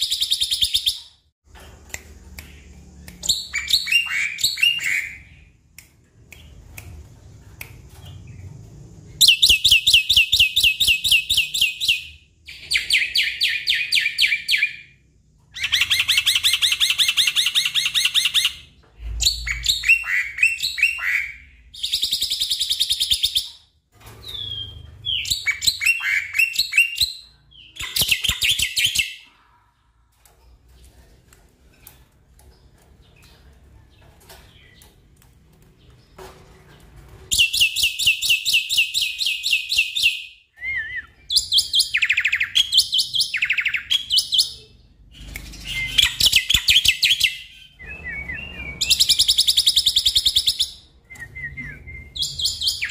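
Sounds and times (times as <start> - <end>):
bird singing trills and chirps: 37.3 - 52.9.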